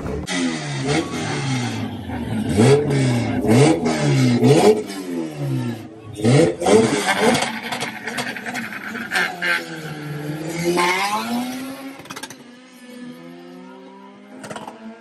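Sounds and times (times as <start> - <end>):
drag racing car engines revving: 0.0 - 15.0.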